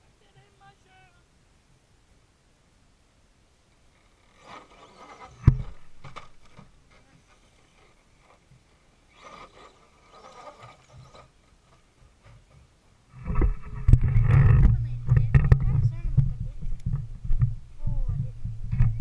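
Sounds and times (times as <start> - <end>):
electric motor and gears whirring: 3.9 - 12.5, 13.2 - 19.0
tyres scraping on rocks: 3.9 - 16.6.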